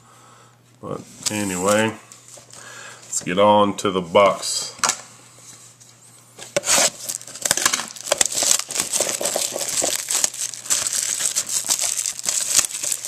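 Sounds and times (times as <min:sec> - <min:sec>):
plastic wrap crinkling: 0:06.5 - 0:13.0.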